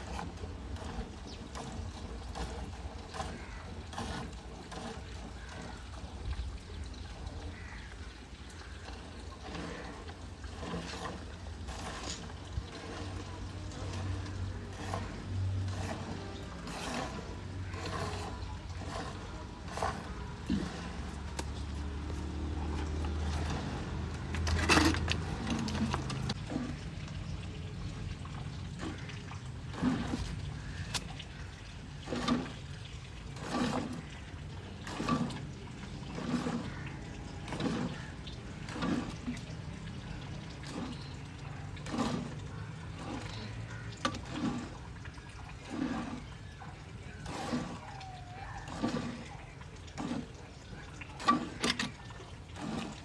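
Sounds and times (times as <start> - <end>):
milk squirting into bucket: 0.0 - 53.0
splashing rustle: 0.0 - 53.0.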